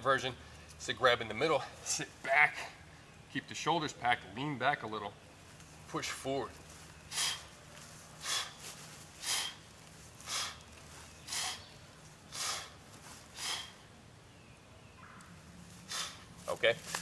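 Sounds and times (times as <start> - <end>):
man breathing out sharply: 7.1 - 7.5, 8.2 - 8.6, 9.2 - 9.6, 10.2 - 10.6, 11.3 - 11.7, 12.3 - 13.9.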